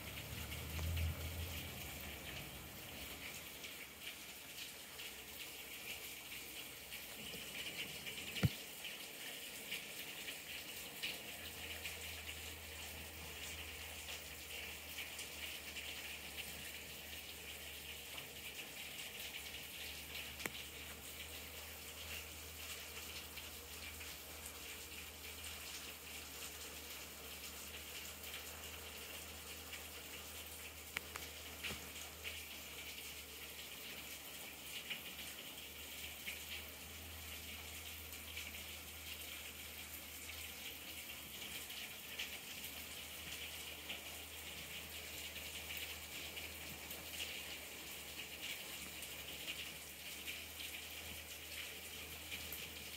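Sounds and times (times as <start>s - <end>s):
raindrops tapping: 0.0s - 16.6s, 18.0s - 34.2s
hard rain hissing: 0.0s - 52.9s.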